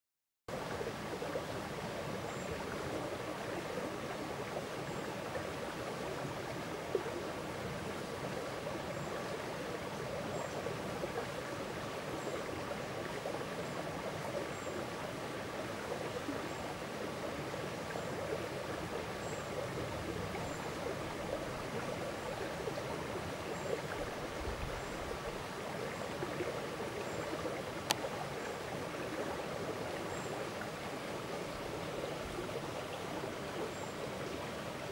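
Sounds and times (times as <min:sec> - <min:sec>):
running water rushing: 0:00.5 - 0:34.9
faint high ticks: 0:27.8 - 0:28.1.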